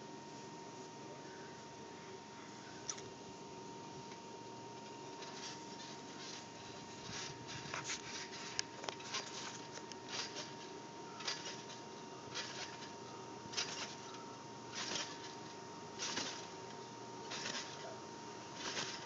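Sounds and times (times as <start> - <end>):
trampoline springs creaking: 4.8 - 19.0.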